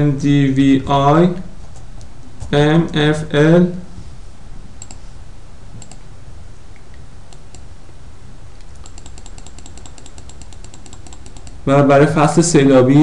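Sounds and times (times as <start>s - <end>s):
steady low hum: 0.0s - 13.0s
computer mouse clicking: 4.8s - 5.0s, 5.8s - 6.0s, 7.3s - 7.7s, 8.6s - 11.6s.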